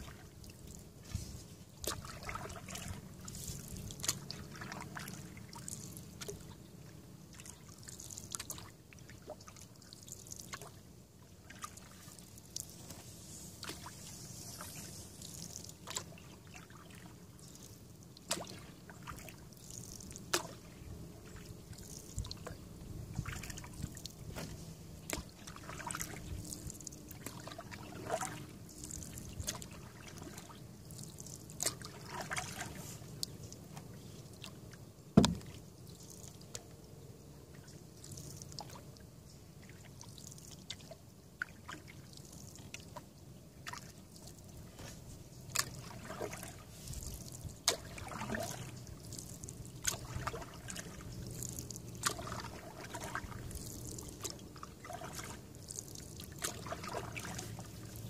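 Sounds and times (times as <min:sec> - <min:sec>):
paddle dipping in water: 0:00.0 - 0:36.7, 0:37.4 - 0:58.0
water dripping off paddle: 0:15.2 - 0:20.6, 0:45.5 - 0:58.0
light knocks: 0:35.2 - 0:35.5.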